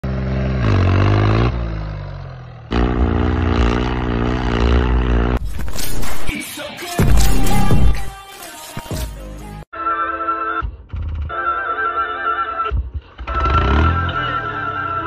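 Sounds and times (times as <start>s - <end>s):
tractor engine revving: 0.0s - 6.4s, 12.4s - 15.0s.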